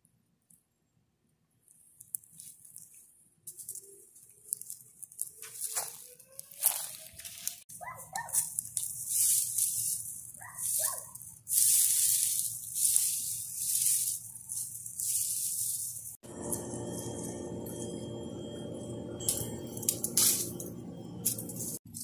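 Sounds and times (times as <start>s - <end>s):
leaves and branches rustling: 2.2s - 16.2s
dog barking: 7.8s - 8.5s, 10.4s - 11.2s
steady hum: 16.2s - 21.9s.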